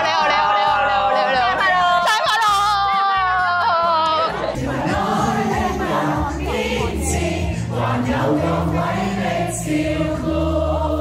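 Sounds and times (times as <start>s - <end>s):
chorus singing: 3.2s - 11.0s.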